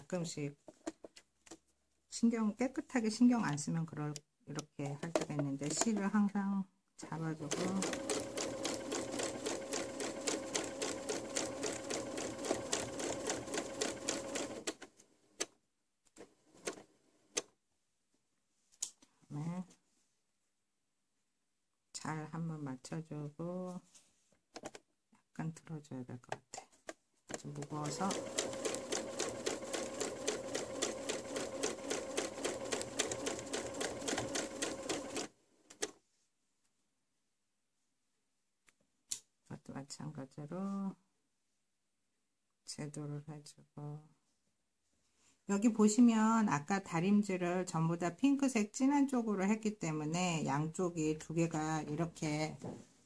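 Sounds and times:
sewing machine stitching: 0:05.1 - 0:06.1, 0:07.3 - 0:15.5, 0:16.2 - 0:17.5, 0:27.3 - 0:36.0.

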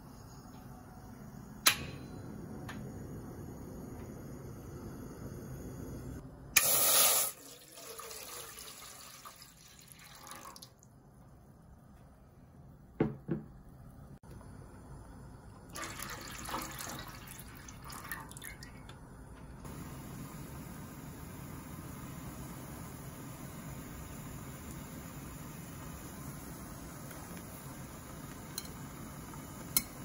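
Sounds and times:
water pouring into metal pot: 0:06.6 - 0:10.8, 0:15.7 - 0:18.8.

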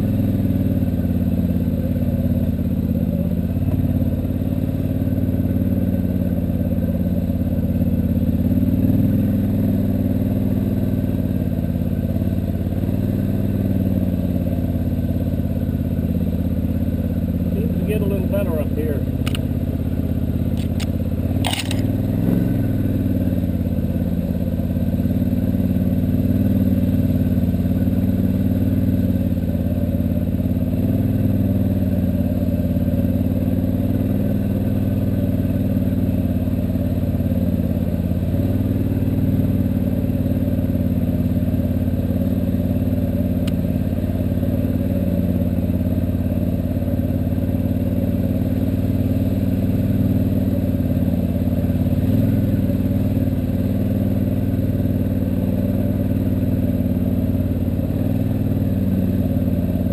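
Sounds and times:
atv engine running: 0:00.0 - 0:59.9.

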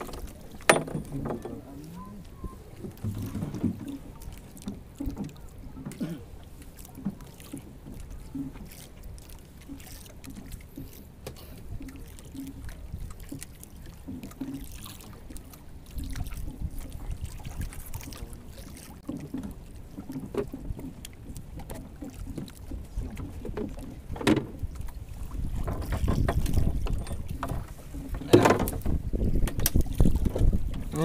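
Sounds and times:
water lapping against boat hull: 0:00.0 - 0:31.0
wind buffeting microphone: 0:22.7 - 0:31.0
fishing line knocks and rustles: 0:25.5 - 0:30.8.

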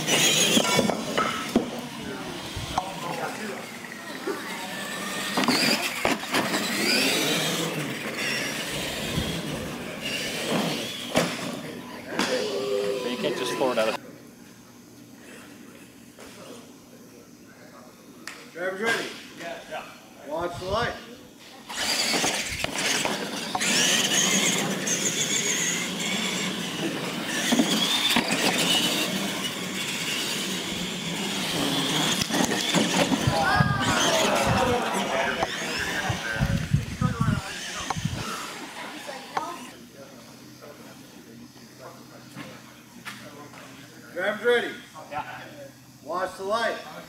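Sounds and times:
toy truck motors whining: 0:00.0 - 0:14.0, 0:21.4 - 0:39.9.

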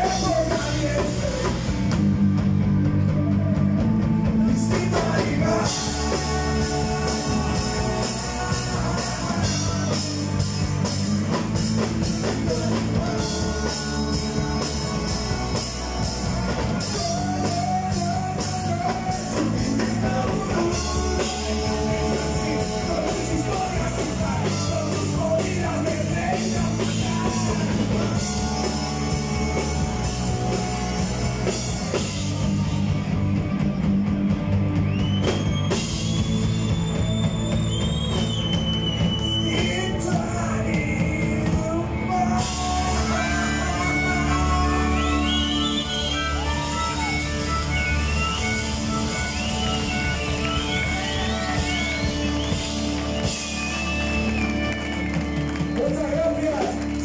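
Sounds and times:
man singing: 0:00.0 - 0:02.0, 0:03.7 - 0:32.1, 0:39.2 - 0:46.6
drum kit: 0:00.0 - 0:57.0
electric guitars: 0:00.0 - 0:57.0.

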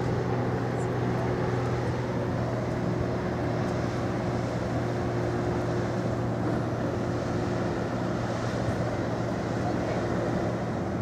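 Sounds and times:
ship engines humming: 0:00.0 - 0:11.0
wash of noise: 0:00.0 - 0:11.0.

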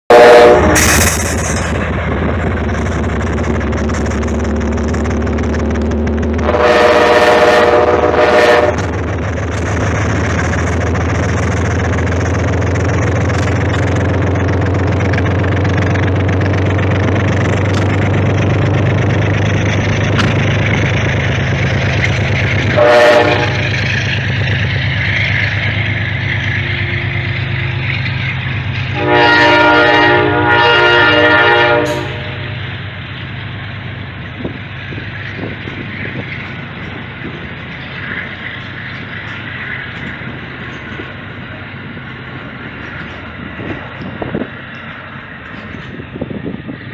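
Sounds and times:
diesel locomotive engine: 0:00.0 - 0:46.9
train chime horn: 0:00.1 - 0:01.0, 0:06.4 - 0:08.8, 0:22.7 - 0:23.7, 0:28.9 - 0:32.6
train wheel and rail noise: 0:00.1 - 0:46.9.

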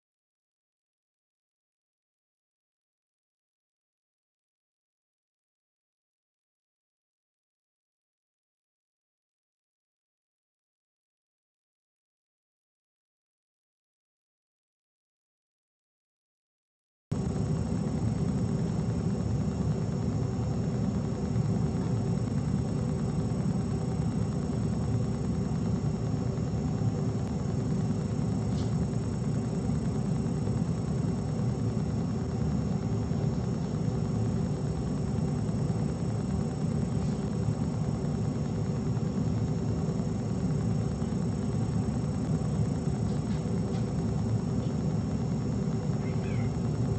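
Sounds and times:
low mechanical hum: 0:17.1 - 0:46.9
faint steady tones: 0:17.2 - 0:46.9.

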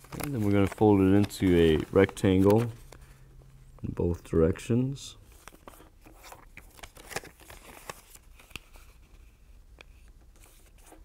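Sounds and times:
paper crinkling and crackling: 0:00.0 - 0:03.0, 0:05.3 - 0:11.0.

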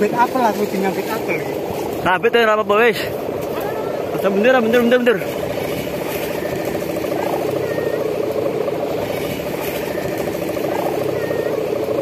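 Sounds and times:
kite hummers droning in wind: 0:03.2 - 0:12.0.

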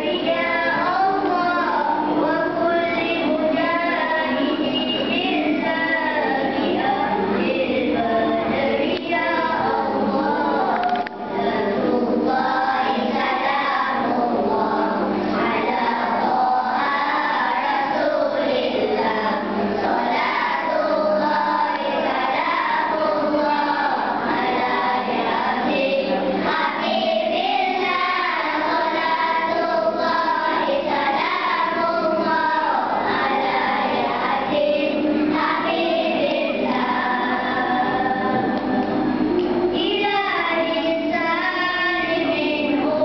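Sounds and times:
children's choir singing: 0:00.0 - 0:43.0.

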